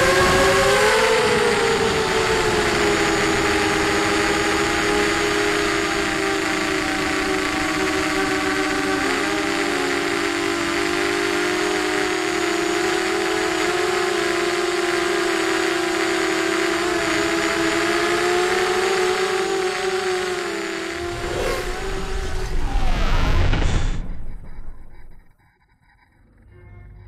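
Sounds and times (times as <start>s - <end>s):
quadcopter motors whining: 0.0s - 25.4s.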